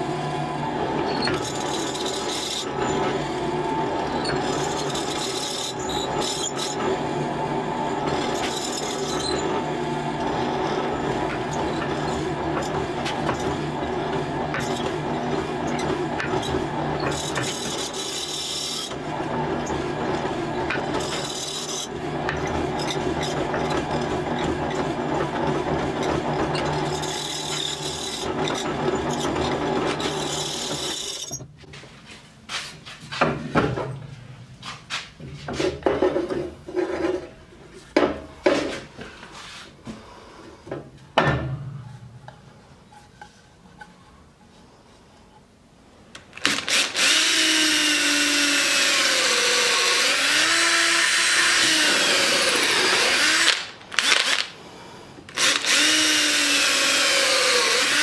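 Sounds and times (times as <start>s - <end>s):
mortiser cutting into wood: 46.4s - 54.5s, 55.3s - 58.0s.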